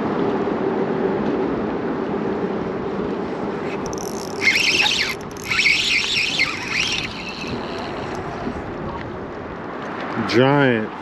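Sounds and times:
fishing reel drag buzzing: 3.6 - 8.6.

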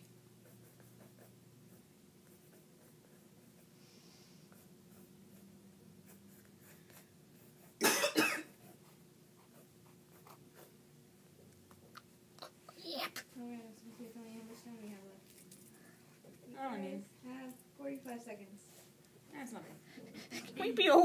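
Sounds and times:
low room hum: 0.0 - 21.0
person coughing: 7.8 - 8.6.

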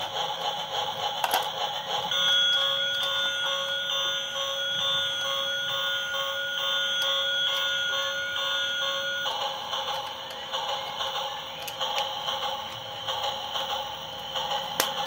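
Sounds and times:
toy train electronic tune: 0.0 - 15.0
repeating beep: 2.1 - 9.4.

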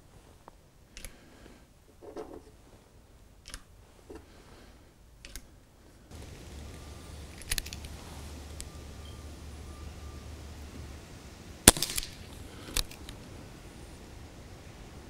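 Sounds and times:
low outdoor rumble: 0.0 - 15.0
revolver cartridges clicking: 5.2 - 5.5, 6.1 - 9.7, 11.6 - 13.6.

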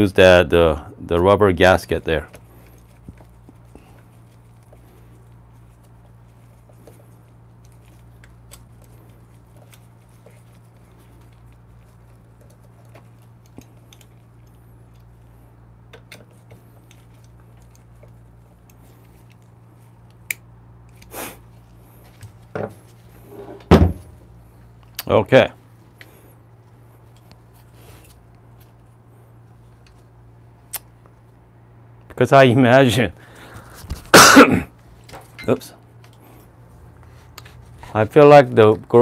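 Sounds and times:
steady low hum: 0.0 - 39.0
knocks and handling sounds: 2.3 - 24.9.

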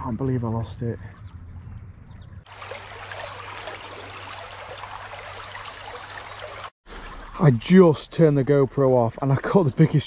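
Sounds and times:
stream babbling over stones: 2.5 - 7.3.

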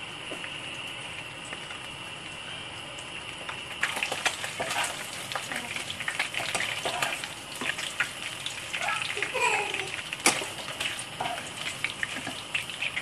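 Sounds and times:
food sizzling in oil: 3.0 - 13.0.

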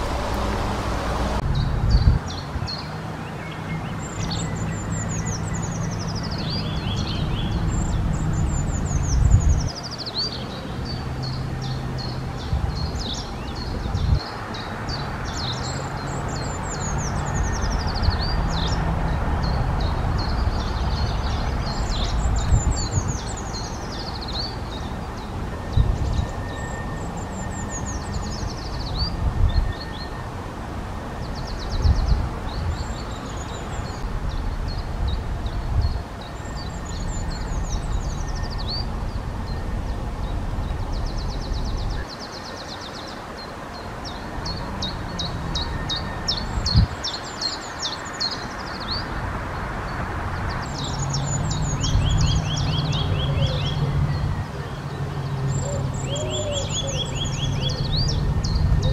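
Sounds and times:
low engine-like rumble: 0.0 - 2.2
bird trilling song: 0.0 - 30.3, 31.2 - 49.2, 50.4 - 58.9.

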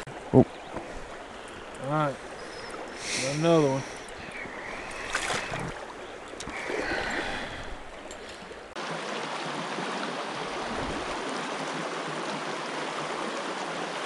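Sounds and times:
splashing in water: 0.0 - 8.8
creek water rushing: 0.0 - 14.0.

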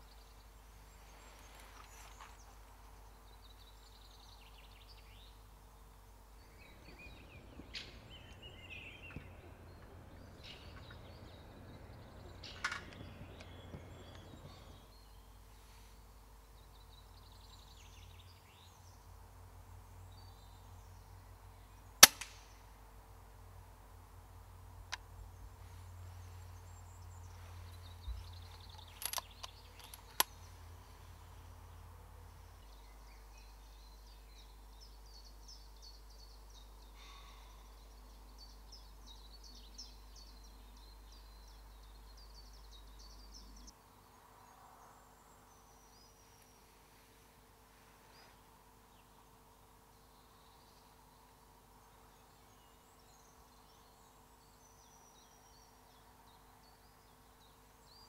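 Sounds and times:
small birds singing: 0.0 - 58.0
air rifle shot: 22.0 - 22.5.

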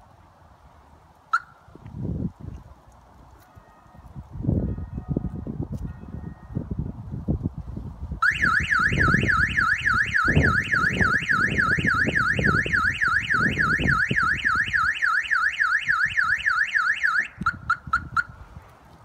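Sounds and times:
car alarm siren warbling: 8.2 - 18.3
car alarm chirps: 8.2 - 18.4.

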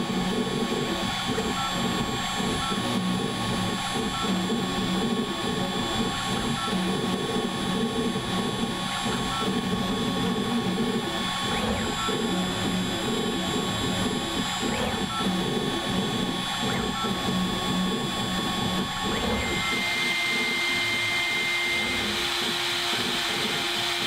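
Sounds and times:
router spindle high whine: 0.0 - 24.0
uneven buzz of axis drives: 9.6 - 24.0.

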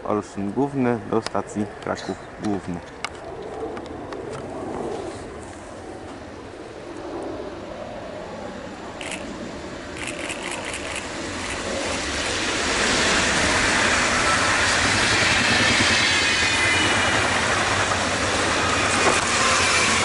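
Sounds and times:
train passing at speed: 3.8 - 20.0
faint high whine: 4.5 - 20.0.

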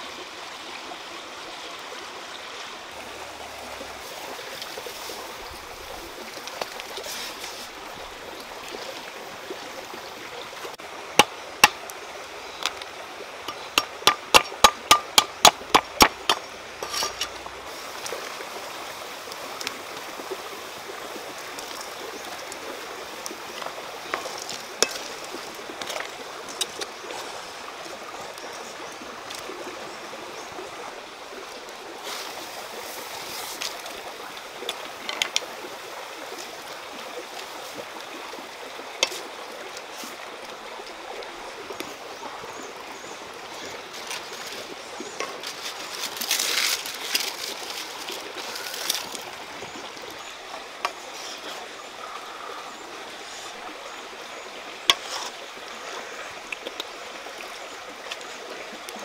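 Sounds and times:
flowing water: 0.0 - 59.0
cleaver chopping on wooden block: 13.5 - 16.4.

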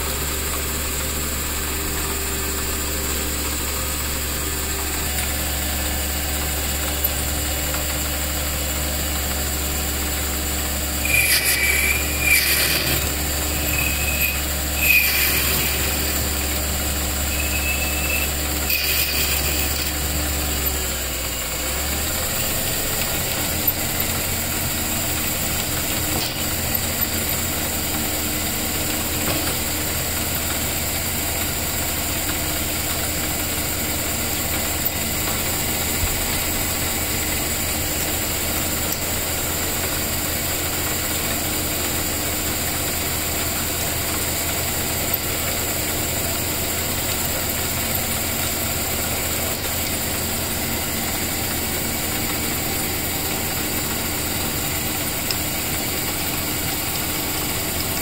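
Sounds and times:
metal lathe motor humming: 0.1 - 42.0.

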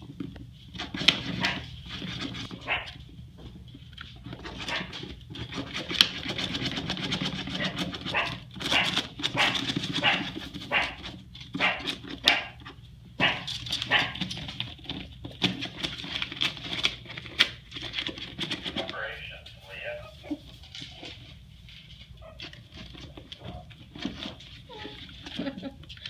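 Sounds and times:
scratching and ripping paper: 0.0 - 3.1, 3.8 - 26.0.

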